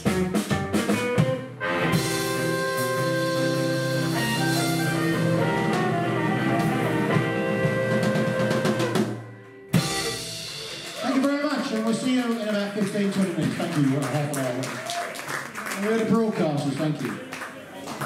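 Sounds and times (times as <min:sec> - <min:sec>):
drums: 0:00.0 - 0:16.1
blues band holding a chord: 0:00.9 - 0:11.0.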